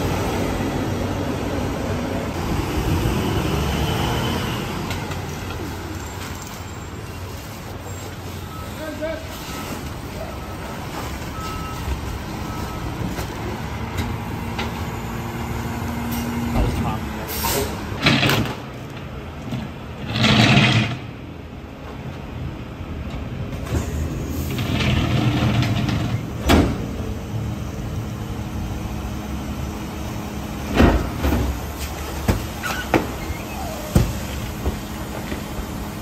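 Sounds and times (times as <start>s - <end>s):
garbage truck diesel engine running: 18.7s - 36.0s.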